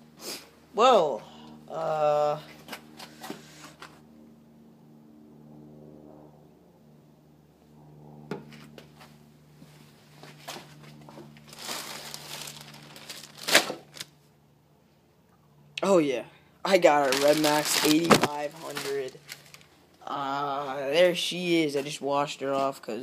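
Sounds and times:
steady low hum: 0.0 - 23.0
footsteps on concrete: 8.4 - 11.4
plastic packaging crinkling: 11.4 - 14.1, 16.7 - 19.8.

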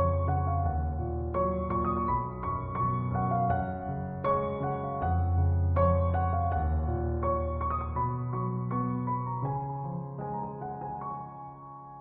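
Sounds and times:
slow gentle piano melody: 0.0 - 12.0.

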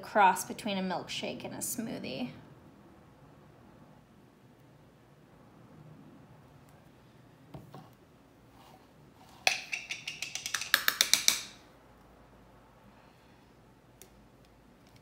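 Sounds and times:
spoon knocking on plastic jar: 9.5 - 11.6.

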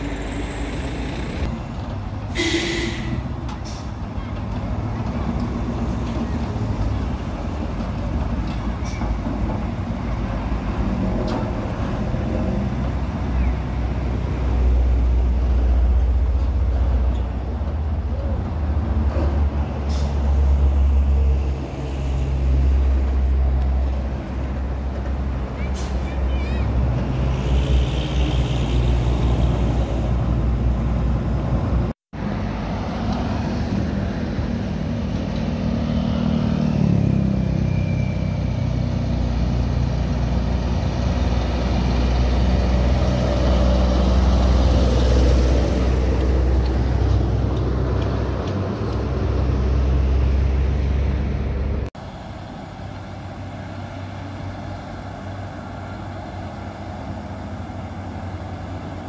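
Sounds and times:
diesel trucks driving past: 0.0 - 59.0.

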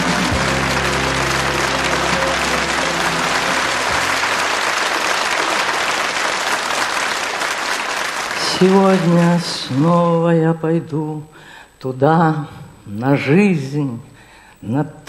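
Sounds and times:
low instrumental music: 0.0 - 4.5
audience applauding: 0.0 - 10.2.

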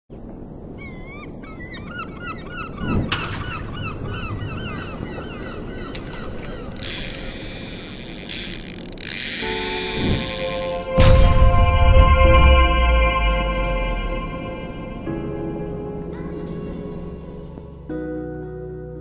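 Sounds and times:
seagulls calling: 0.7 - 11.0
loud whooshing hiss: 9.4 - 15.2.

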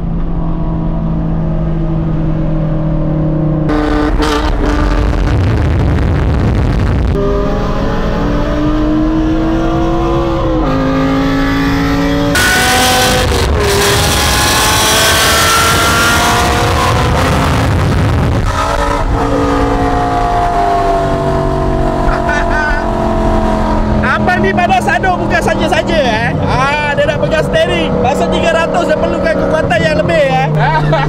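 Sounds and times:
car engine accelerating hard: 0.0 - 31.0
wind and road rush: 0.0 - 31.0.

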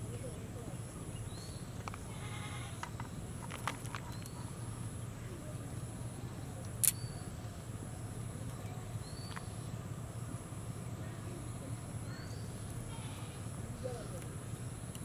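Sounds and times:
faint high whine: 0.0 - 15.0
steady low hum: 0.0 - 15.0.

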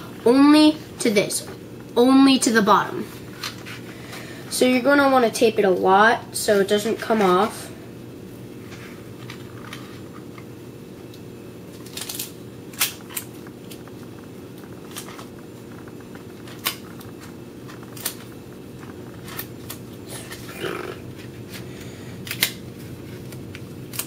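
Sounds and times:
steady low hum: 0.0 - 24.0
paper and tape crinkling: 11.7 - 14.0.

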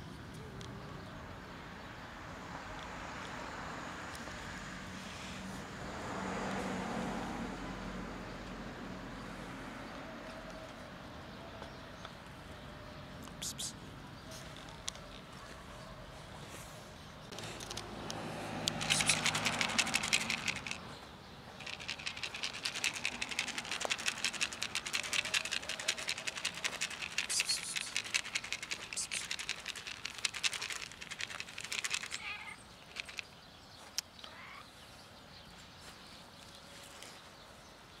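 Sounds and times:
food rattling in plastic container: 18.7 - 20.8, 21.6 - 32.2.

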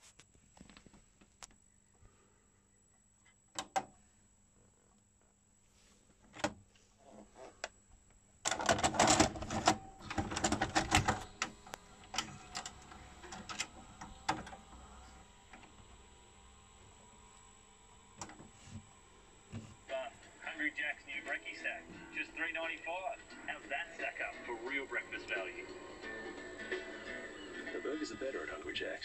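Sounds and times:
cassette handling clicks: 8.5 - 14.7
vcr mechanism clicking: 8.5 - 16.0, 18.2 - 18.5
vcr motor whirring: 8.5 - 29.0.

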